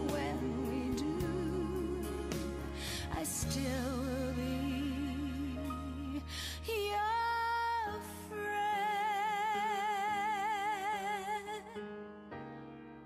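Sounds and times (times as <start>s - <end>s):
soft accompaniment: 0.0s - 11.0s.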